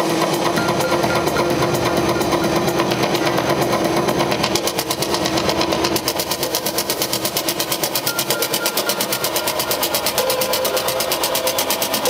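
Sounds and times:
electronic dance music: 0.1 - 4.0, 7.4 - 12.0
held synth tone: 0.4 - 3.7, 7.6 - 12.0.

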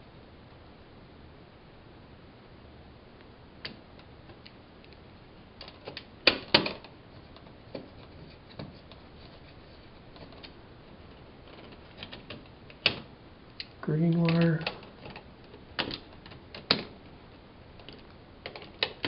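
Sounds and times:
small clicks and taps on wires: 11.4 - 16.9, 17.8 - 19.0
sharp clicks: 11.5 - 16.9.

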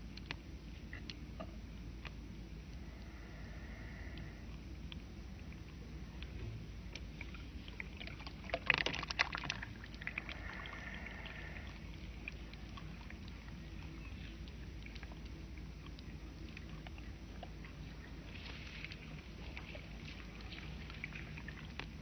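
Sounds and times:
low hum: 0.0 - 22.0
water trickling: 7.0 - 22.0.

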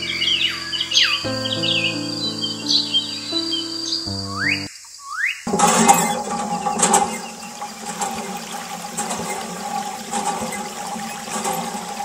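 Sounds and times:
water jet spraying: 5.5 - 12.0.

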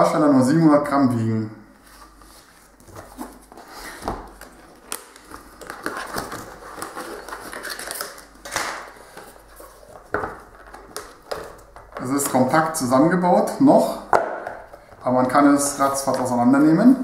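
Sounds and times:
cardboard rustling and scraping: 1.8 - 12.6.

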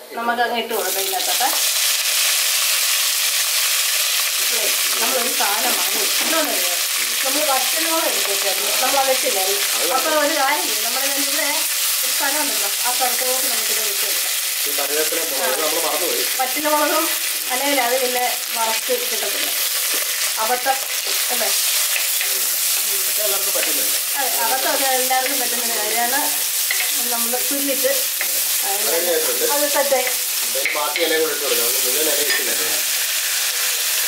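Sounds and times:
leaves sizzling in hot oil: 0.7 - 34.0
steel ladle stirring: 26.6 - 27.0.

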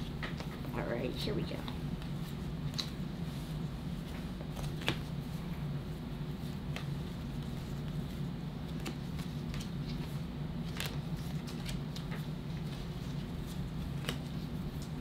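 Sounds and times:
steady low hum: 0.0 - 15.0
trading cards flipping: 2.7 - 3.0, 4.4 - 5.1, 8.7 - 15.0.

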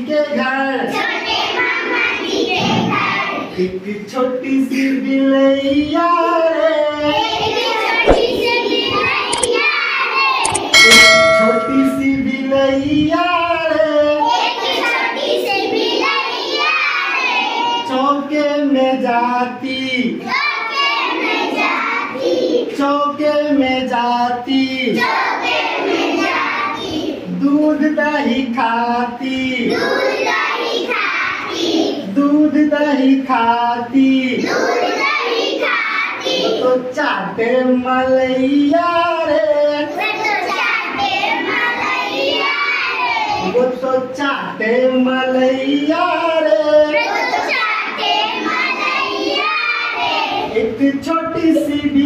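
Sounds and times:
children singing together: 0.9 - 3.6, 7.0 - 11.3, 14.2 - 17.9, 20.3 - 22.8, 24.9 - 27.3, 29.6 - 32.1, 34.3 - 36.7, 39.9 - 43.6, 46.7 - 50.6
bell-like ding: 10.7 - 12.5.

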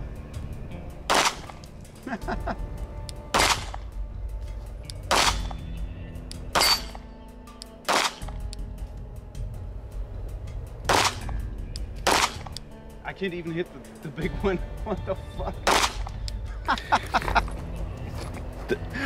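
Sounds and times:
pistol shots: 1.1 - 1.7, 3.3 - 3.9, 5.0 - 5.6, 6.6 - 7.0, 7.8 - 8.4, 10.9 - 11.4, 12.0 - 12.6, 15.6 - 16.2.

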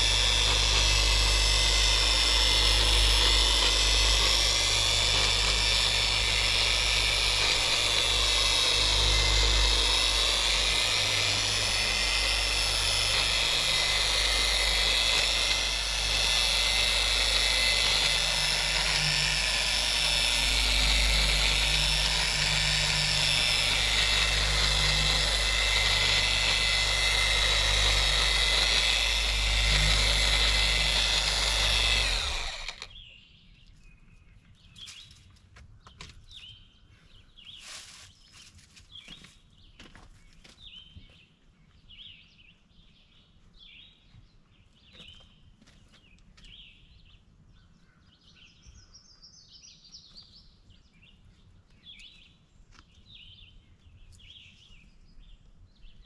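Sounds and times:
polisher running: 0.0 - 32.9.

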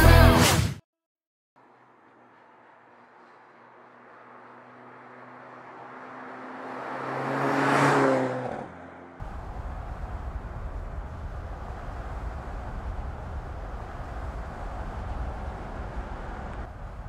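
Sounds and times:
low engine rumble: 1.6 - 5.0, 9.2 - 17.0
car engine passing by: 1.6 - 17.0.

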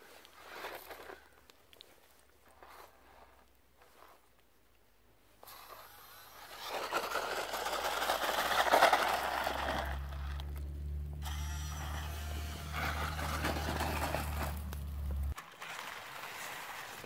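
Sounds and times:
electric drivetrain whirring: 5.6 - 16.9
tyres scraping over dirt and rock: 6.4 - 17.0.

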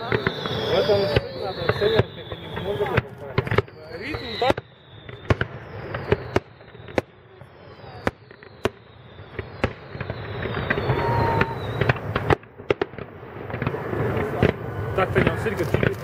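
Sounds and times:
firework shells bursting: 0.0 - 7.2, 7.8 - 16.0
faint falling whistle: 0.0 - 12.0
fireworks hissing and crackling: 0.0 - 16.0.

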